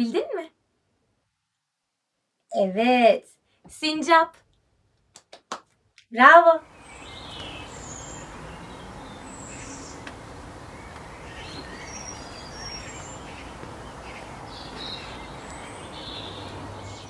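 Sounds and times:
steady background hiss: 6.2 - 17.0.

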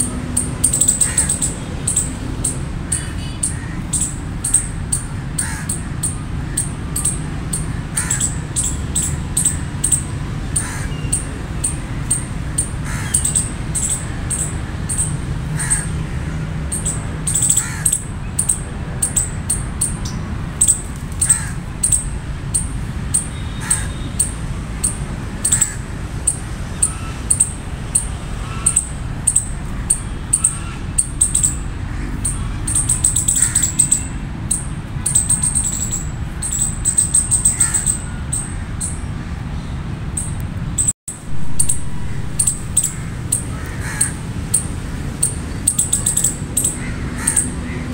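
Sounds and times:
high sharp bird chirps: 0.0 - 15.9, 16.7 - 39.1, 40.2 - 47.9
harsh crow-like caw: 1.0 - 1.5, 2.9 - 6.7, 7.6 - 8.7, 10.5 - 11.1, 11.9 - 16.7, 17.3 - 18.0, 21.2 - 21.7, 23.4 - 24.3, 25.4 - 26.0, 28.3 - 29.0, 29.8 - 34.1, 37.4 - 38.8, 41.6 - 44.3, 46.1 - 47.9.

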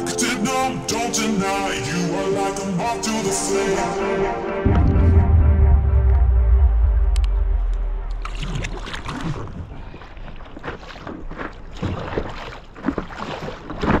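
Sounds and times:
background music: 0.0 - 9.0
paddle strokes splashing water: 8.1 - 14.0.

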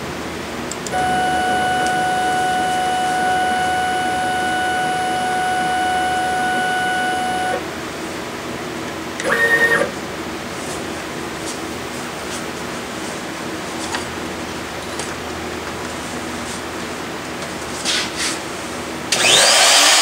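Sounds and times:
pitched whine: 0.7 - 7.9
router spindle running: 0.8 - 7.6, 19.1 - 20.0.

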